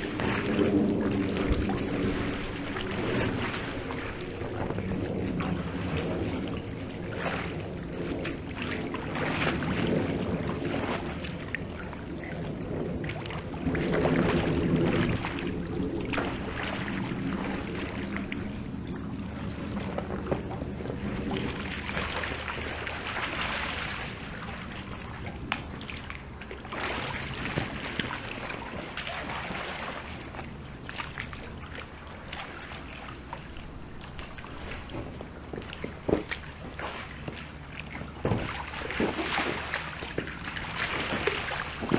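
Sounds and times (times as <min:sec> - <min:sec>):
hands splashing in pool water: 0:32.3 - 0:41.9.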